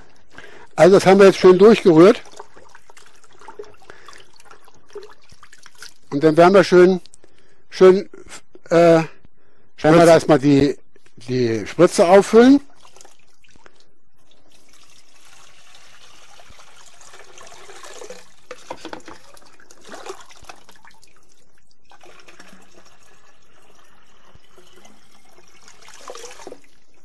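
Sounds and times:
brine gurgling and sloshing: 1.3 - 6.2, 12.6 - 27.0.

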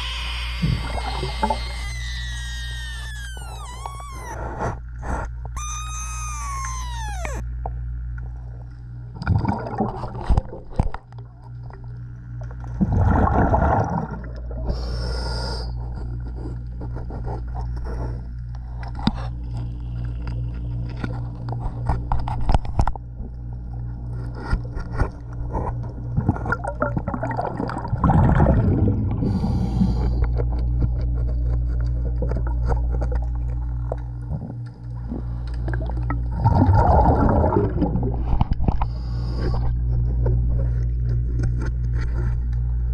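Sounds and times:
underwater regulator bubbling: 0.0 - 7.4, 26.3 - 30.6, 34.3 - 39.7
steady low hum: 0.0 - 42.9
clicks and scrapes on hull: 15.8 - 27.1, 30.0 - 35.7, 38.2 - 42.9.

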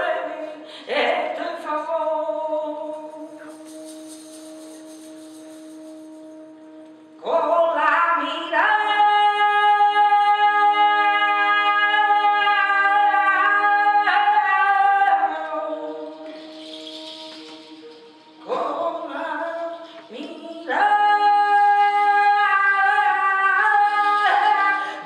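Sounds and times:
woman singing a long note: 7.2 - 25.0.

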